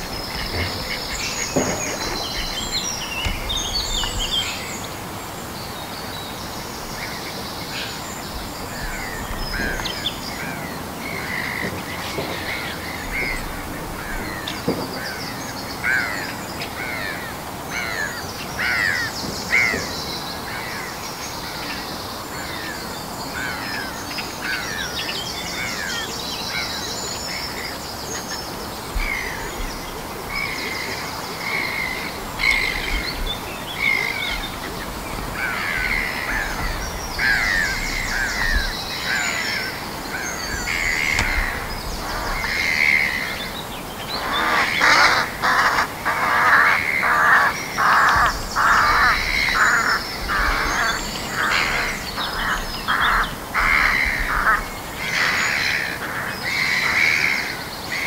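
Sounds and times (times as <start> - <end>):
water rushing: 0.0 - 15.2
birds singing and calling: 0.0 - 58.0.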